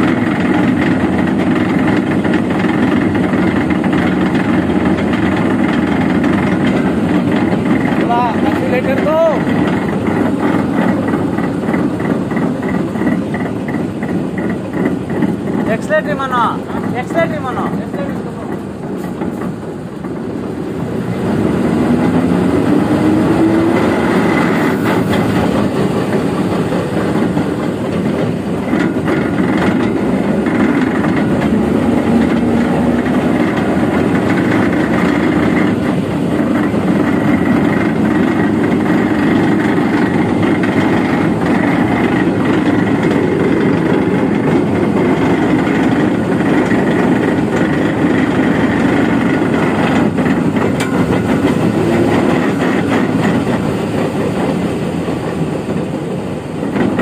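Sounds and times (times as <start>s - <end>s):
truck engine revving: 20.6s - 57.0s.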